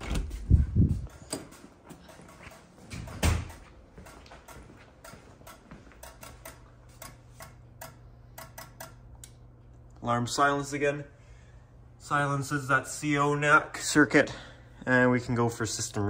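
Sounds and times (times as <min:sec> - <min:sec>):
steady low hum: 0:00.0 - 0:16.0
sharp clicks and ticks: 0:01.0 - 0:09.4.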